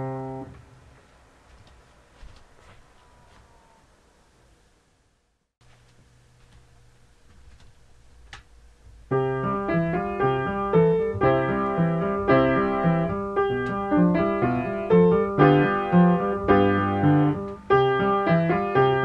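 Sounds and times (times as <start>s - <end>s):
piano music: 0.0s - 0.5s, 9.1s - 19.0s.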